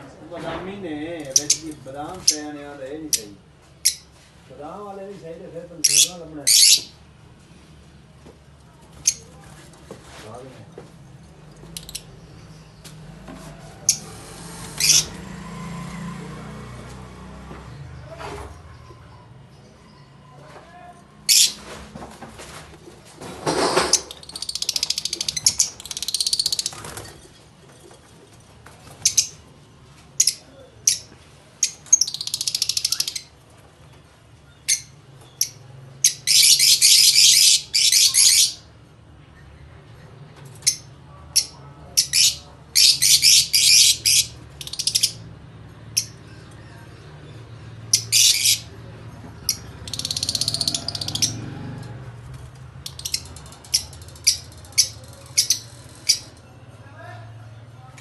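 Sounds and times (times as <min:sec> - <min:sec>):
lovebirds chirping and squawking: 0:01.2 - 0:04.4, 0:05.8 - 0:07.0, 0:09.0 - 0:09.4, 0:13.8 - 0:15.4, 0:21.2 - 0:21.8, 0:23.4 - 0:38.8, 0:39.4 - 0:51.6, 0:52.8 - 0:56.5.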